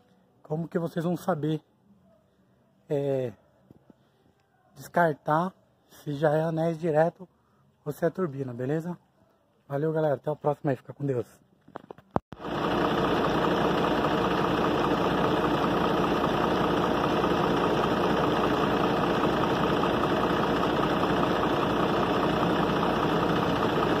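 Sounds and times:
diesel engine idling: 0:12.4 - 0:24.0.

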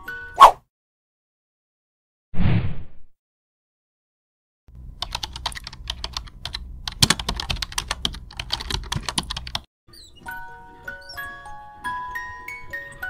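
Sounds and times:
rapid clicks and taps: 0:05.0 - 0:09.7.

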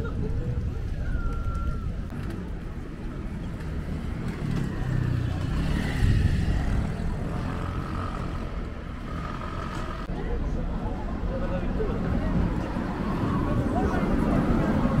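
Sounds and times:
vehicle engine passing by: 0:03.6 - 0:10.1.

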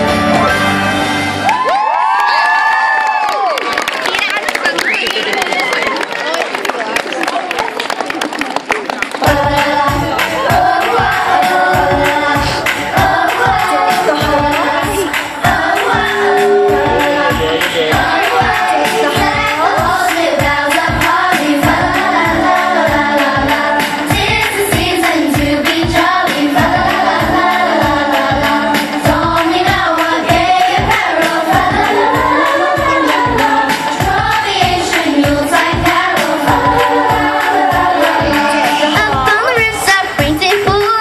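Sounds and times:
backing track with steady beat: 0:09.2 - 0:41.0
choir singing pop song: 0:09.2 - 0:41.0.

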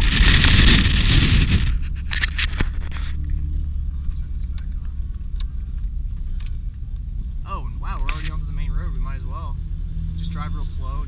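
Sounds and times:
wind and snow rushing: 0:00.0 - 0:02.6
car rumbling: 0:00.0 - 0:11.0.

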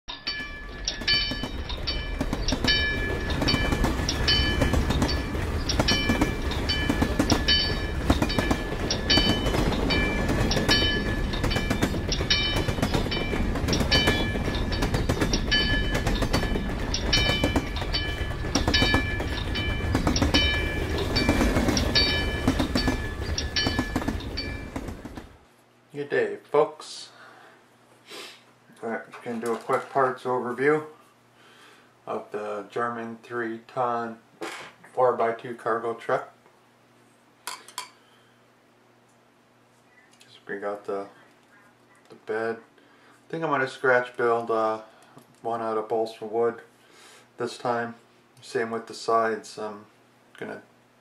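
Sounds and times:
crossing signal bell ringing: 0:00.1 - 0:25.4.

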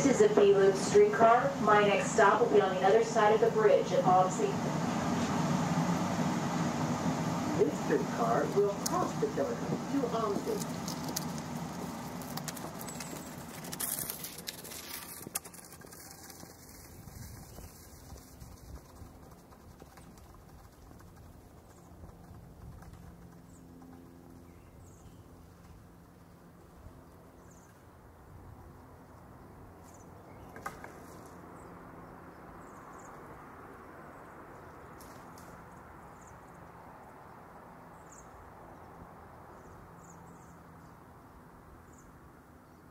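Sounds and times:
low steady cabin hum: 0:00.0 - 0:14.0
wheels rumbling on rail: 0:00.0 - 0:25.9
faint low hum: 0:00.0 - 0:42.9.

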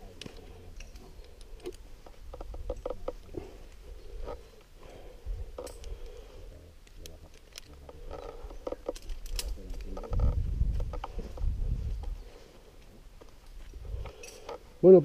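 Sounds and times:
metal climbing gear clinking: 0:00.3 - 0:03.2, 0:05.4 - 0:06.2, 0:07.2 - 0:10.3, 0:13.6 - 0:14.6.

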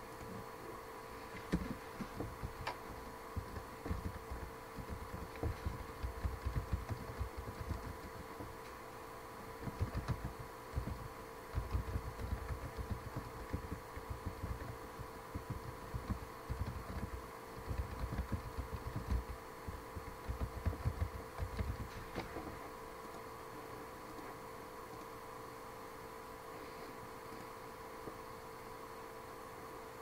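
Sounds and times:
faint electrical whine: 0:00.0 - 0:30.0
muffled keyboard typing: 0:01.4 - 0:08.7, 0:09.6 - 0:23.3.

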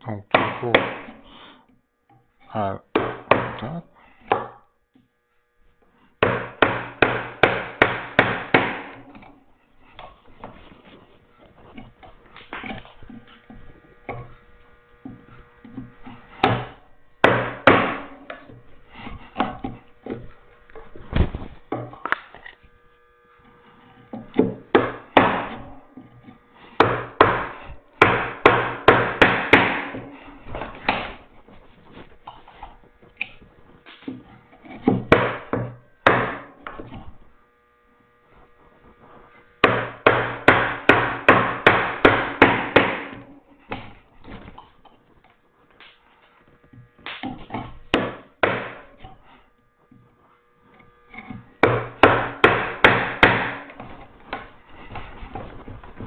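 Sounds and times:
mallet striking chisel: 0:00.3 - 0:01.2, 0:02.9 - 0:04.6, 0:06.2 - 0:09.3, 0:15.1 - 0:20.2, 0:24.0 - 0:30.1, 0:34.1 - 0:37.0, 0:39.6 - 0:44.0, 0:47.0 - 0:49.2, 0:51.1 - 0:54.4.

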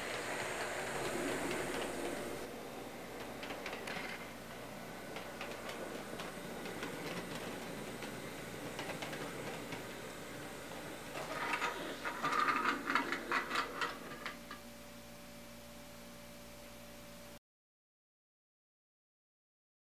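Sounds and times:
model train ticking and clicking: 0:00.0 - 0:14.6
faint steady hum: 0:00.0 - 0:17.4.

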